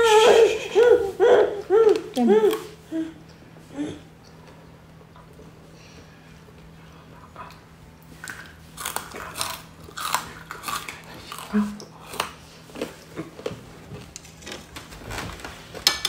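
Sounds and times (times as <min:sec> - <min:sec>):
cracker crunching: 0:08.2 - 0:15.5.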